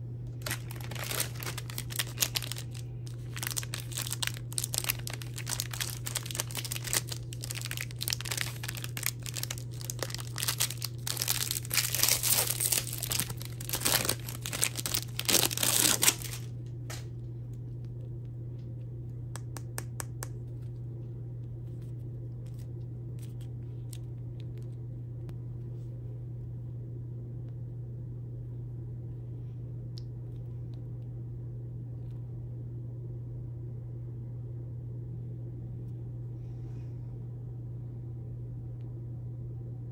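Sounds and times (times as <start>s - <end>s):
low hum: 0.0s - 39.9s
plastic wrapper crinkling and tearing: 0.3s - 17.1s.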